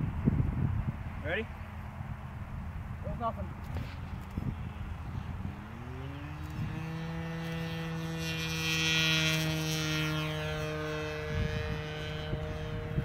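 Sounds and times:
model plane engine droning: 0:03.5 - 0:13.0.

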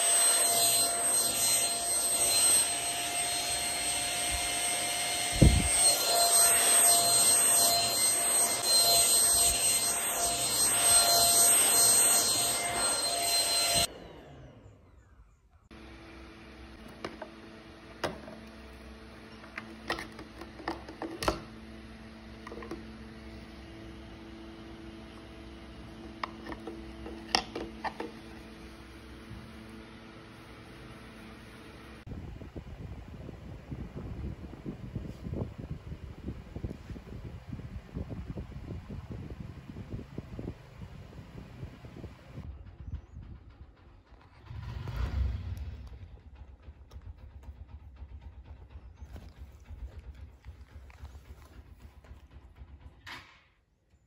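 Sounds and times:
handheld vacuum whining: 0:00.0 - 0:32.1
low hum: 0:03.4 - 0:53.2.

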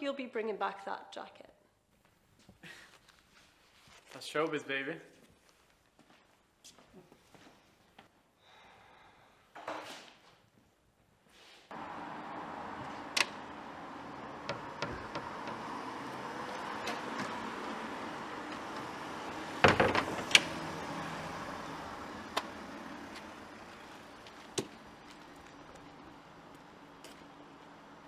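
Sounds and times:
outdoor background hum: 0:11.7 - 0:28.0
cluster of knocks: 0:14.4 - 0:15.8, 0:19.6 - 0:20.3.

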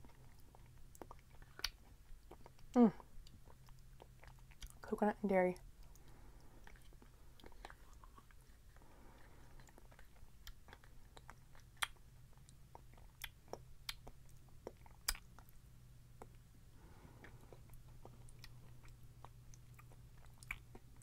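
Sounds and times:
faint low hum: 0:00.0 - 0:21.0
wet mouth sounds: 0:05.8 - 0:15.5.

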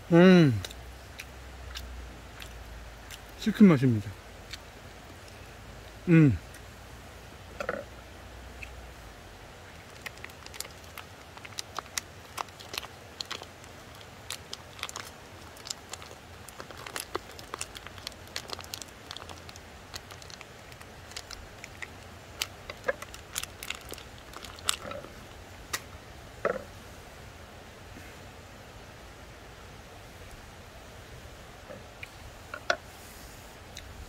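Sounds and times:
creek water hissing: 0:00.0 - 0:34.0
plastic wrapper crinkling: 0:09.8 - 0:25.4.

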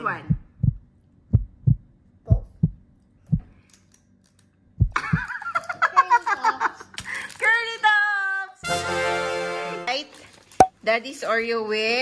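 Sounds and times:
lively music: 0:08.6 - 0:09.9.

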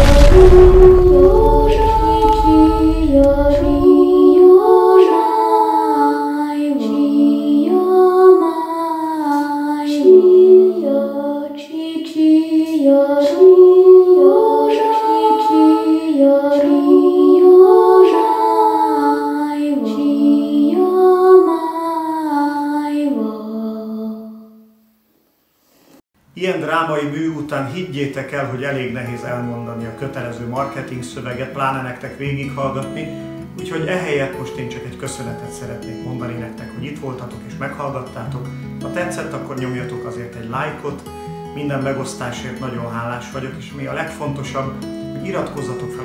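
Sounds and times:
low explosion rumble: 0:00.0 - 0:04.1
wordless a cappella singing: 0:00.0 - 0:24.7, 0:28.4 - 0:37.4, 0:45.2 - 0:46.0.

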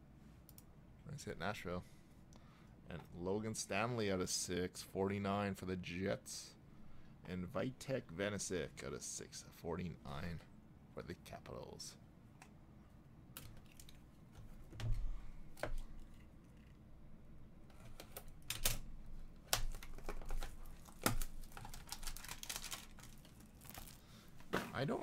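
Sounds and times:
plastic wrap crinkling: 0:19.6 - 0:24.9.

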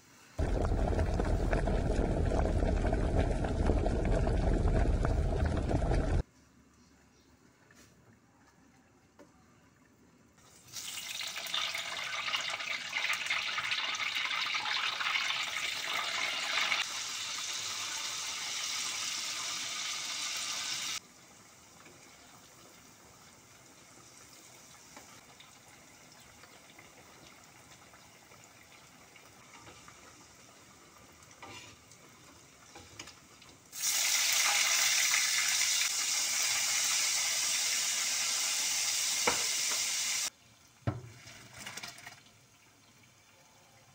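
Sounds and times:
oil sizzling in a wok: 0:10.4 - 0:43.7.

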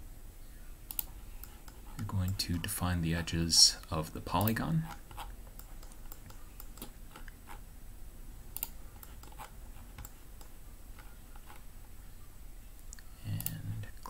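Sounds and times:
faint low hum: 0:00.0 - 0:14.0
computer mouse clicks: 0:00.9 - 0:02.8, 0:04.3 - 0:07.6, 0:08.5 - 0:11.6, 0:12.8 - 0:14.0.

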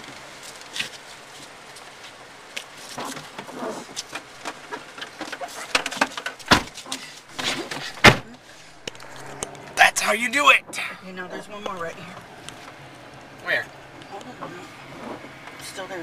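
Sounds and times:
small knocks and rustles: 0:00.0 - 0:08.1.

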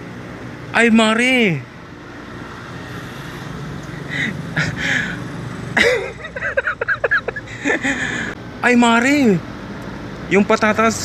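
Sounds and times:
low traffic rumble: 0:00.0 - 0:11.0
man laughing: 0:04.0 - 0:05.2, 0:05.8 - 0:08.4.

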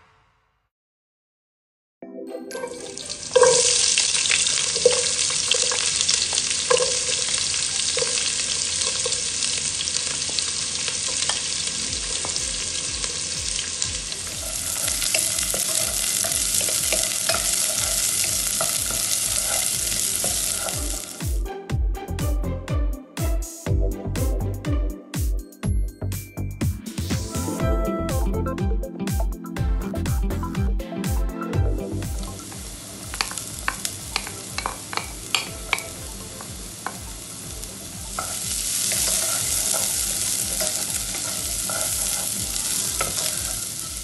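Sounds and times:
onions sizzling in hot oil: 0:02.8 - 0:21.4, 0:32.0 - 0:44.0.

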